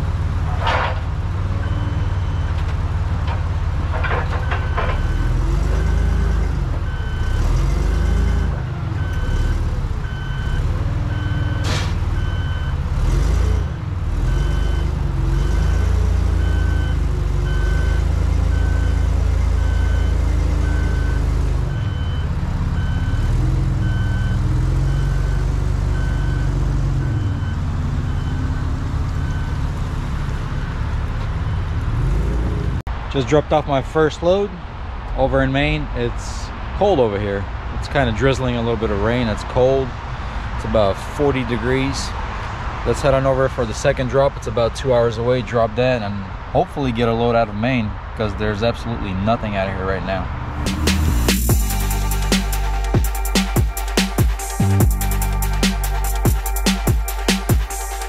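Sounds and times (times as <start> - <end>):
forklift engine revving: 0.0 - 32.9, 50.4 - 58.0
reversing alarm beeping: 1.6 - 2.6, 4.1 - 12.8, 14.2 - 29.8, 50.8 - 58.0.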